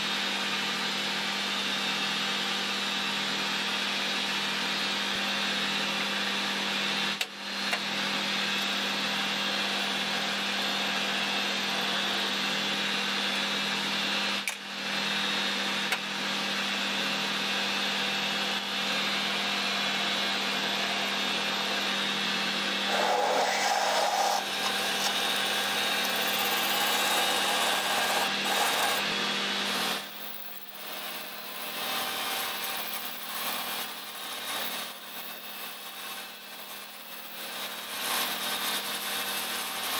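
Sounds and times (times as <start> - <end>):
metal lathe cutting: 17.4 - 39.9
lathe motor hum: 19.1 - 39.9.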